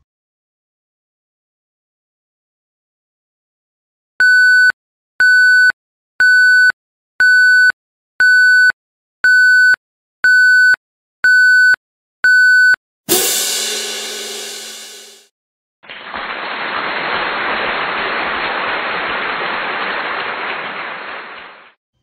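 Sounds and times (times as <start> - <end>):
loud crash: 13.1 - 15.2.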